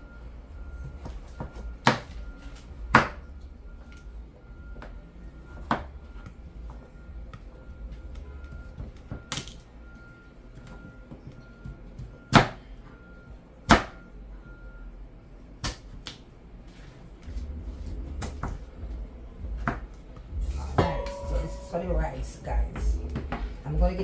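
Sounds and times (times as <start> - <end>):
low rumble: 17.3 - 24.0.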